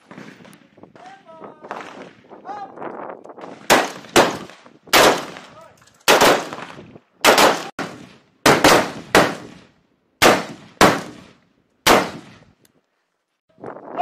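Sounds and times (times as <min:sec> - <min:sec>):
rifle single shots echoing: 0:03.5 - 0:12.4.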